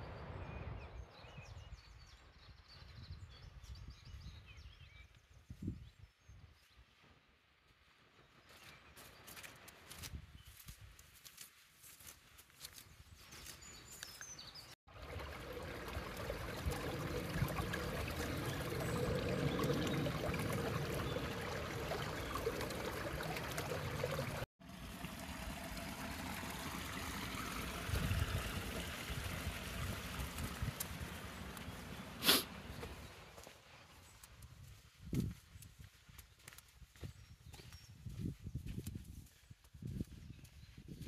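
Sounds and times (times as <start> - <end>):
water trickling over stones: 13.9 - 36.2
water pouring from pipe: 14.9 - 32.4.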